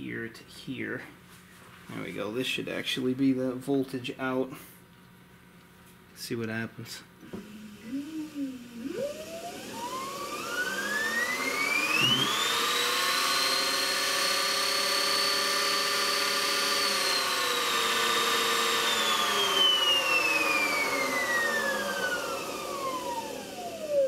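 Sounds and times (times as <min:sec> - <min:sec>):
electric motor whining: 0:07.3 - 0:24.0.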